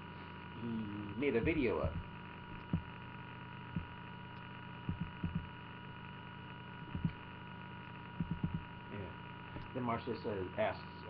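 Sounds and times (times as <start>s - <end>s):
electrical hum: 0.0s - 11.0s
soft low thumps: 1.3s - 3.0s, 3.7s - 4.0s, 4.9s - 5.5s, 6.9s - 7.2s, 8.2s - 8.7s.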